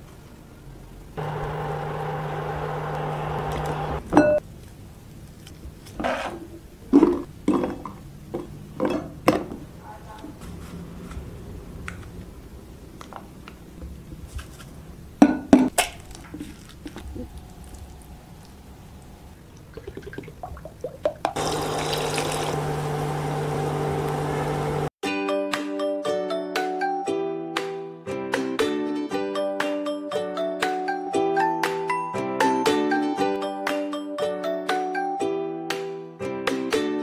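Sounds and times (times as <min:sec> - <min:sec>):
steady electric hum: 0:01.2 - 0:04.1, 0:21.4 - 0:24.9.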